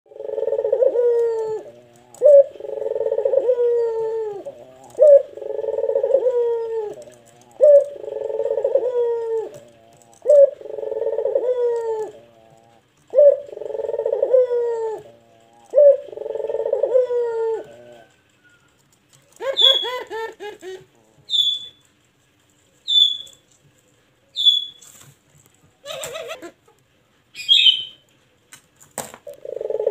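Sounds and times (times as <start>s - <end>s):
dove cooing: 0.1s - 21.8s, 25.7s - 26.8s, 29.2s - 29.9s
high bird chirps: 21.3s - 21.8s, 22.8s - 23.4s, 24.3s - 24.9s, 27.4s - 28.0s.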